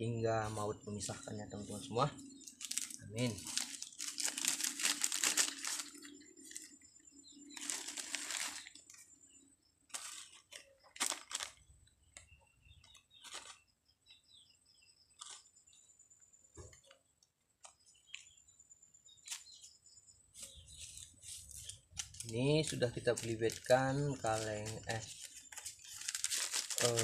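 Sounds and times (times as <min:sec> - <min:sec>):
soil rustling: 0:00.0 - 0:09.1, 0:09.9 - 0:13.6, 0:19.1 - 0:27.0
plastic bags crinkling: 0:02.4 - 0:06.8, 0:07.4 - 0:09.0, 0:09.9 - 0:11.7, 0:20.8 - 0:27.0.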